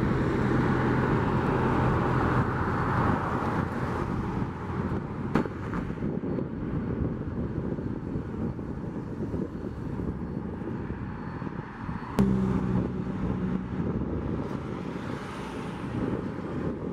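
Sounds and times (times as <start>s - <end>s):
diesel locomotive engine: 0.0s - 5.2s, 12.0s - 16.9s
road traffic rumble: 0.0s - 16.9s.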